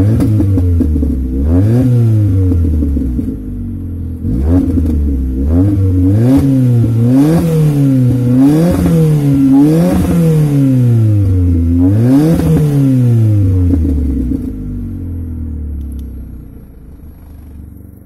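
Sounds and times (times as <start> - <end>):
car engine idling: 0.0 - 18.0
car engine revving: 0.0 - 18.0.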